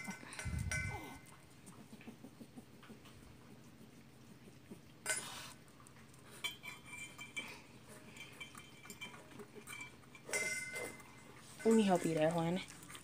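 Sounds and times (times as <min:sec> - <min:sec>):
metal bowl clinking: 0:00.0 - 0:01.3, 0:06.3 - 0:13.0
pet eating from a bowl: 0:00.0 - 0:13.0.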